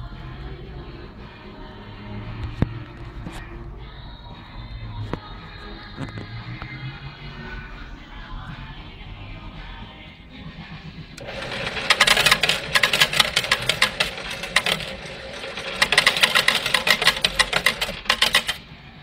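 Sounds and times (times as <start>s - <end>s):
coins clattering into metal tray: 11.2s - 18.6s.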